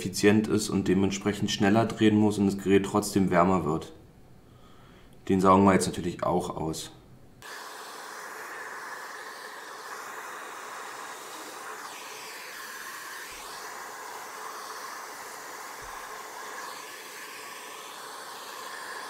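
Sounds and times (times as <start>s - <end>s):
vacuum cleaner running: 7.4s - 19.0s.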